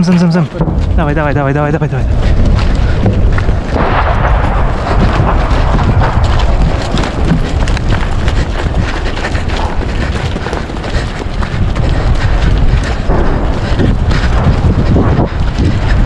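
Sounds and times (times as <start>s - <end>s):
gear jostling: 0.0s - 16.0s
running footsteps: 0.0s - 16.0s
wind rumble on microphone: 0.0s - 16.0s.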